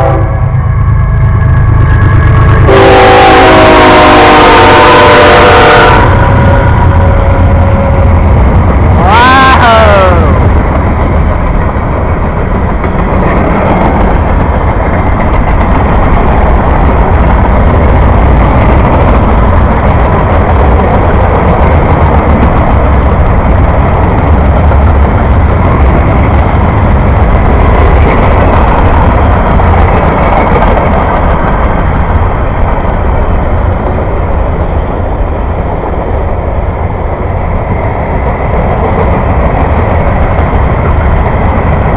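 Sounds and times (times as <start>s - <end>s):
train horn: 0.0s - 0.5s, 2.6s - 8.1s
freight cars rumbling on rails: 0.0s - 41.9s.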